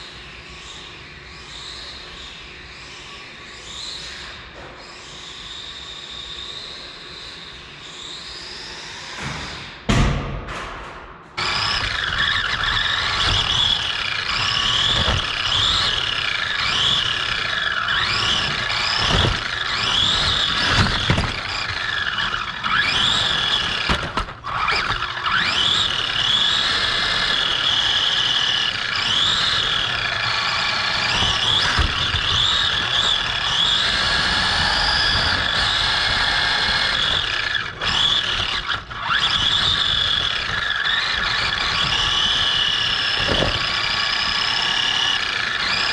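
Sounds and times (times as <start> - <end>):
electric motor and gears whining: 11.4 - 45.9
tyre and chassis rattle: 37.1 - 44.2.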